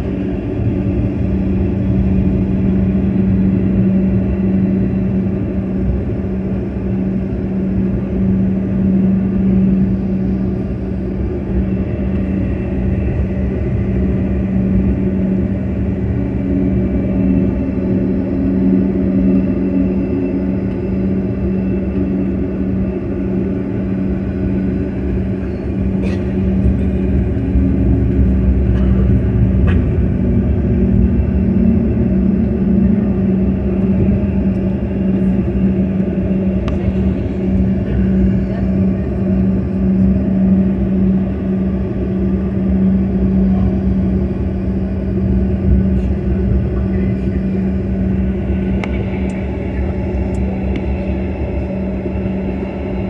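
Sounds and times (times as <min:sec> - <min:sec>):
jet cabin drone: 0:00.0 - 0:53.0
low rumble: 0:00.0 - 0:53.0.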